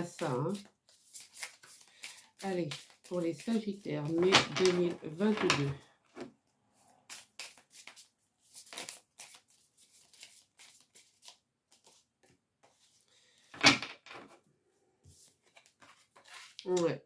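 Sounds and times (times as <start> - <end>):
cards shuffling: 0.2 - 5.8, 7.1 - 12.0.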